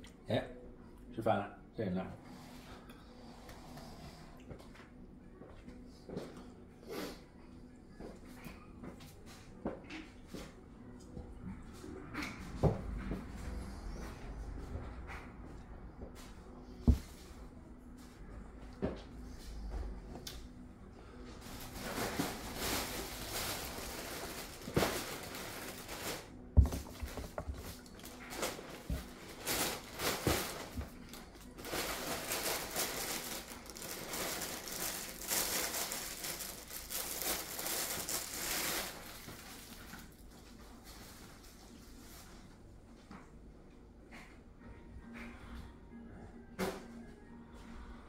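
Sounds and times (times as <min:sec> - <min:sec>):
crinkling rustling: 0:21.4 - 0:42.2.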